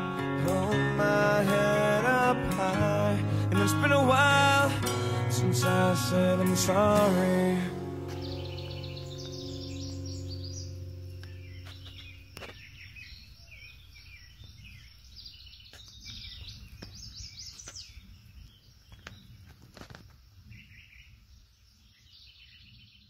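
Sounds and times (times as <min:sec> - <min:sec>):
songbirds chirping and singing: 0:00.0 - 0:23.0.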